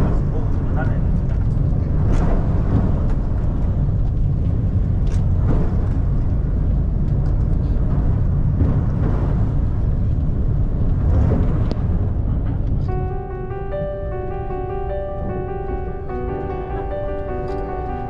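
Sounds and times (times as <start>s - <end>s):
ship engine low rumble: 0.0s - 18.0s.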